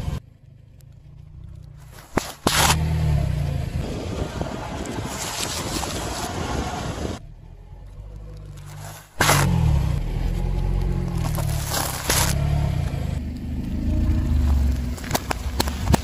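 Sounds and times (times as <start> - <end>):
car engine idling: 0.0 - 2.1
packets and food crushing: 11.1 - 12.4.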